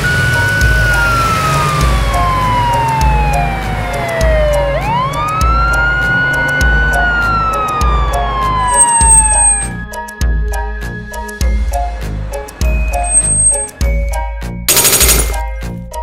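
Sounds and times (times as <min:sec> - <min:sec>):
police siren wailing: 0:00.0 - 0:09.8
background music with steady beat: 0:00.0 - 0:16.0.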